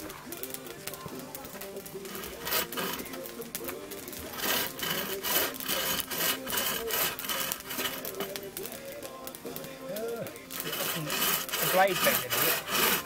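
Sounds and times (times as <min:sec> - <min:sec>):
bow saw cutting log: 0:02.0 - 0:03.2, 0:04.3 - 0:08.4, 0:10.5 - 0:13.0.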